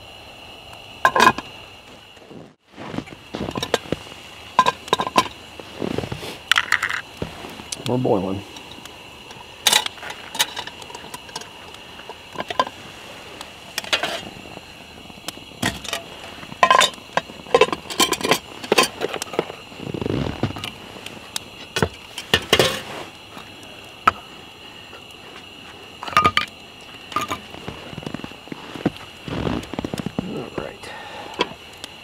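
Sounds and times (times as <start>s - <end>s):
faint steady hiss: 0.0s - 32.0s
metal pot clinking and knocking: 4.6s - 5.4s, 16.6s - 18.9s, 26.0s - 26.5s.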